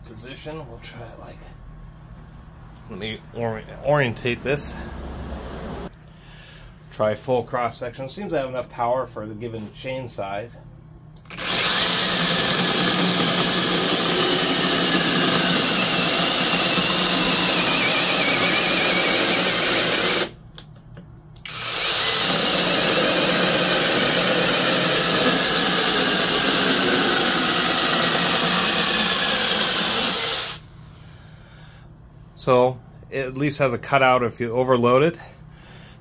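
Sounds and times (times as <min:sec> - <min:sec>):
chainsaw cutting log: 0:11.3 - 0:20.3, 0:21.5 - 0:30.6.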